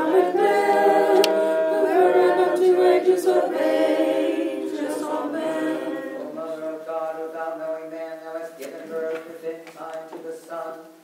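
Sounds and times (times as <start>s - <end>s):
choir singing chant: 0.0s - 8.0s.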